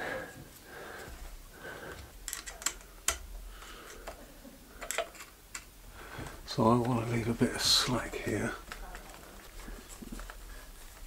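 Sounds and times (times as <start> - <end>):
hands handling cable and plastic parts: 1.9 - 3.3, 4.8 - 11.0.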